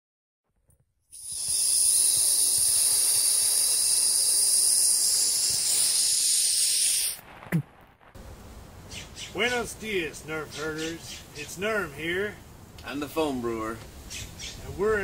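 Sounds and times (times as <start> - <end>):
loud rushing air hiss: 1.1 - 7.3.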